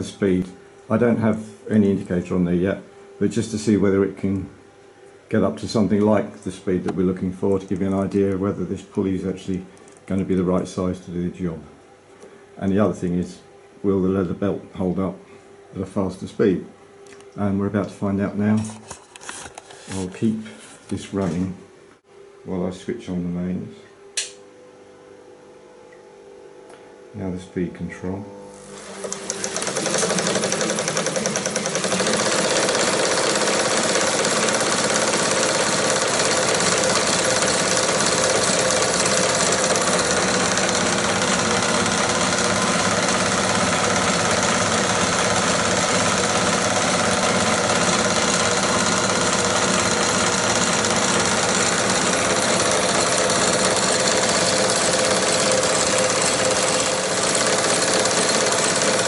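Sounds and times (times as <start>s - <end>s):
projector mechanism rattling: 28.8s - 59.0s.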